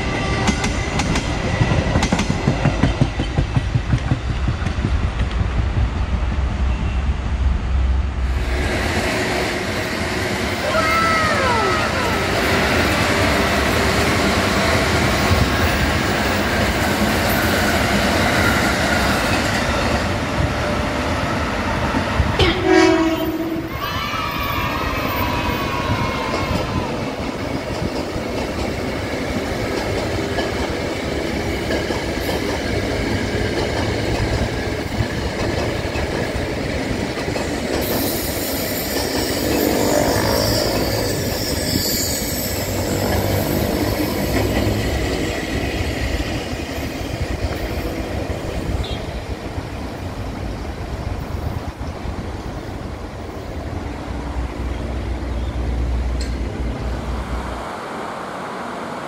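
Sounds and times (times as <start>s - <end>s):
electric trains rumbling past: 0.0s - 59.0s
high rushing squeal: 37.9s - 45.1s.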